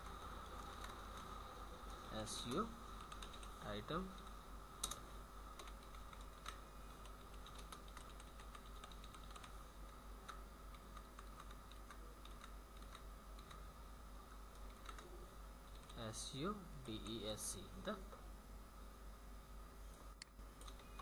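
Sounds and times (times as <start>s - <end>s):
keyboard typing: 0.0s - 1.4s, 2.3s - 13.6s, 14.5s - 16.0s, 20.6s - 21.0s
low electrical hum: 0.0s - 21.0s.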